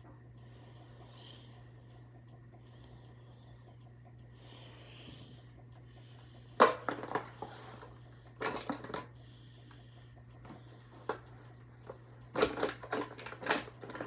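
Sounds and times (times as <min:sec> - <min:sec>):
soft nasal breathing: 0:00.3 - 0:06.6, 0:09.1 - 0:12.3.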